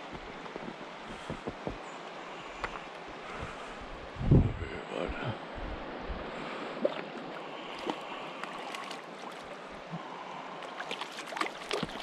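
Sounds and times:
creek water running: 4.8s - 12.0s
fish splashing at surface: 10.7s - 12.0s.

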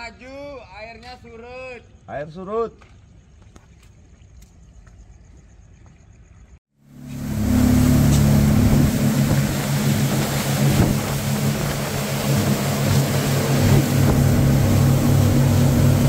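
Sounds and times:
wind and spray hiss: 2.9s - 16.0s
outboard motors droning: 6.8s - 16.0s.

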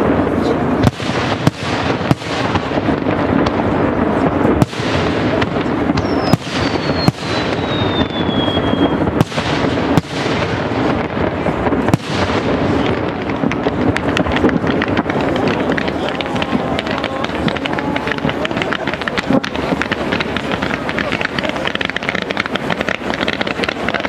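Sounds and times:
continuous noise: 0.0s - 24.0s
fireworks bangs: 0.0s - 24.0s
firework whistle falling in pitch: 6.0s - 9.0s.

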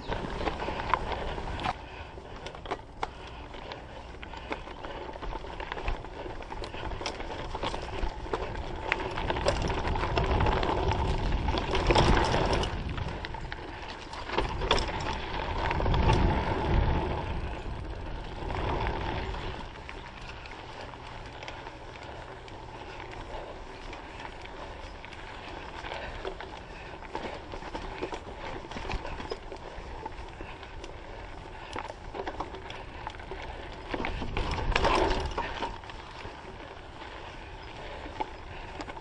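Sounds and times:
bike clicks and rattles: 0.0s - 39.0s
bike tyres rushing on dirt: 0.0s - 39.0s.

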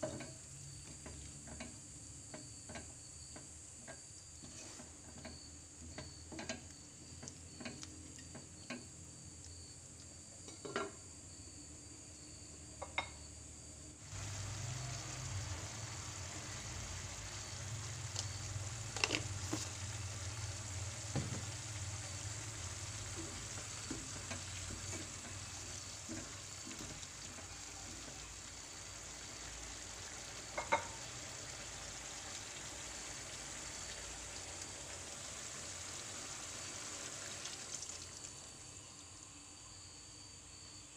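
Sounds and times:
curry sizzling: 14.0s - 39.2s
wooden spatula tapping a pan: 23.2s - 27.4s, 30.5s - 31.0s.

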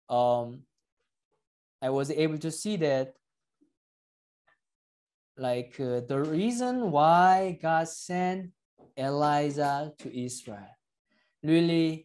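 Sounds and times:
man speaking: 0.1s - 0.6s, 5.4s - 10.7s.

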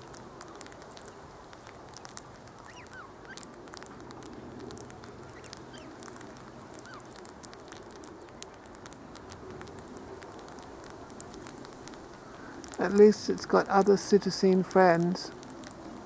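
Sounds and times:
birds chirping: 2.0s - 3.4s, 5.0s - 7.2s.

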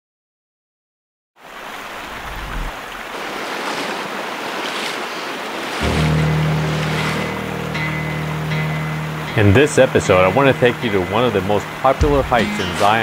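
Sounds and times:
river water rushing over stones: 1.4s - 13.0s
boots wading through water: 1.6s - 13.0s
music with held low note: 5.8s - 13.0s.

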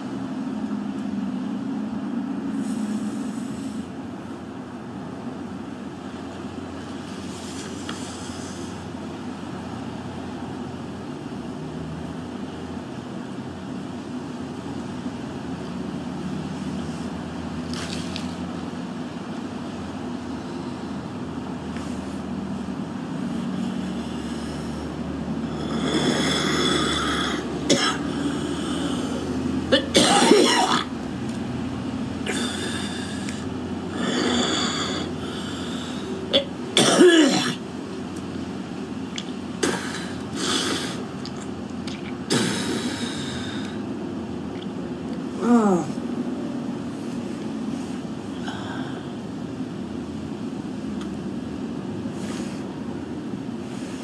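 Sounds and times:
steady low hum: 0.0s - 54.0s
woman coughing: 27.7s - 28.0s, 29.7s - 30.9s, 36.3s - 37.6s.

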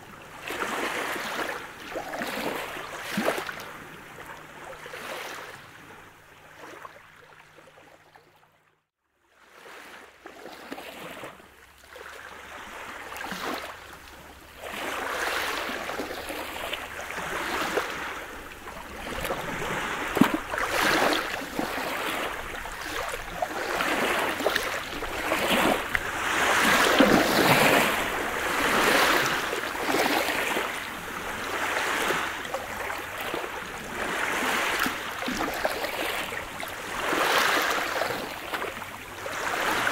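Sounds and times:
waves washing on pebble beach: 14.6s - 39.9s.

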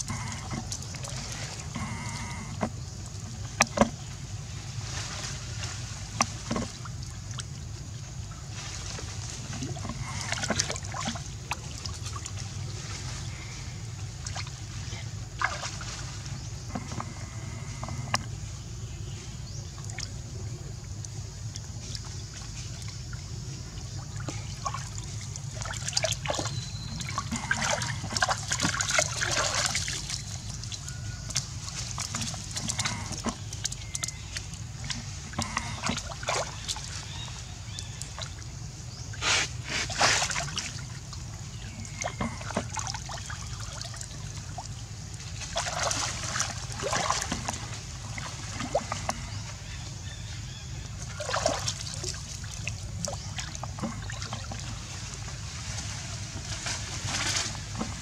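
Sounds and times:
monkeys splashing in water: 23.8s - 58.0s.

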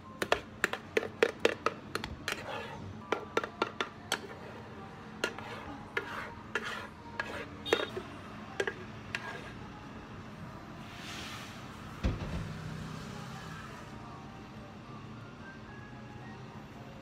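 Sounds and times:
spatula knocking on jar: 0.2s - 2.5s, 3.1s - 4.4s
spatula scraping blender jar: 0.2s - 9.6s.

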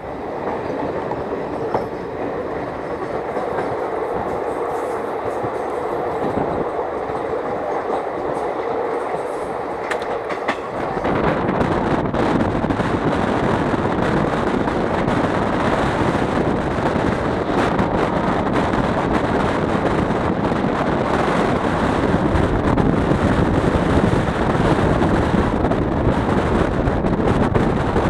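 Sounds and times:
train running on track: 0.0s - 28.0s
wind buffeting microphone: 0.0s - 28.0s.

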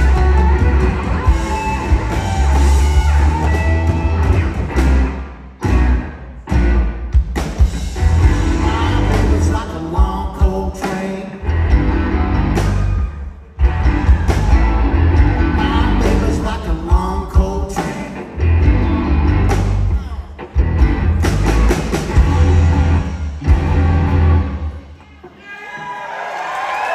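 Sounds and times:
electric guitar: 0.0s - 10.0s, 10.8s - 25.0s
bass guitar: 0.0s - 25.0s
drum kit: 0.0s - 25.0s.

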